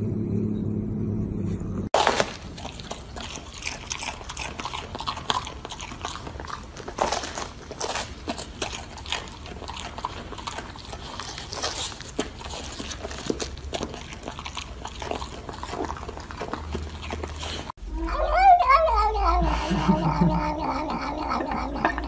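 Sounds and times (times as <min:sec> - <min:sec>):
dog chewing cabbage: 0:02.0 - 0:17.8.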